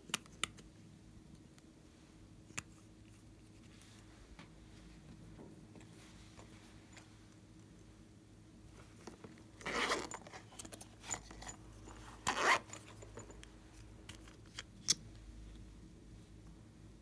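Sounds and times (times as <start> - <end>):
zipper rasping: 9.6 - 10.4, 12.1 - 13.0.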